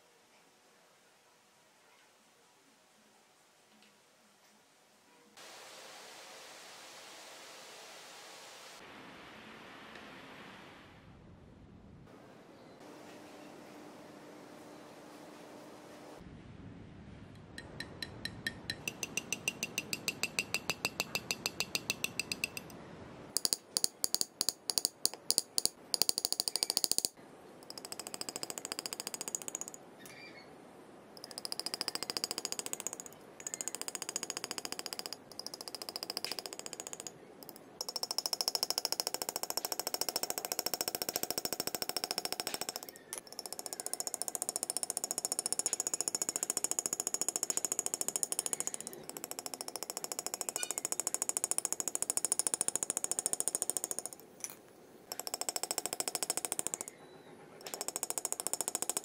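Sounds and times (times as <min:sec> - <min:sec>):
engraving handpiece tapping metal: 0:17.6 - 0:22.8, 0:23.4 - 0:29.8, 0:31.2 - 0:57.0, 0:57.6 - 0:59.0.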